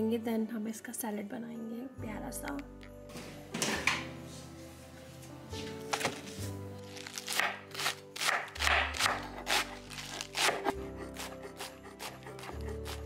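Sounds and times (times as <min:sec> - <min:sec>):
knife chopping lettuce on wood: 0:07.0 - 0:13.0.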